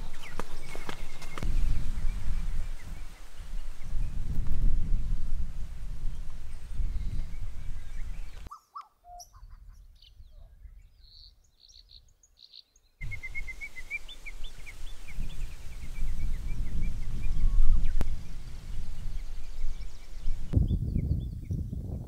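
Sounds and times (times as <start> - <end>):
small birds chirping: 0.0 - 4.4, 6.1 - 21.8
wind buffeting microphone: 0.0 - 8.5, 13.0 - 22.0.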